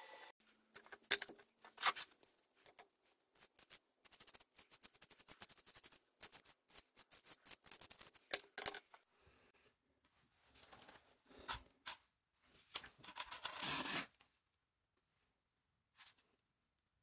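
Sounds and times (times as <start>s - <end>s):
marker scratching: 3.4s - 8.4s.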